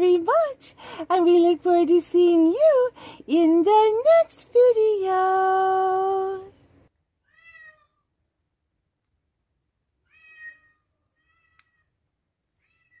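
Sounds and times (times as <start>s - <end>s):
cat meowing: 7.2s - 8.0s, 10.0s - 11.9s, 12.6s - 13.0s.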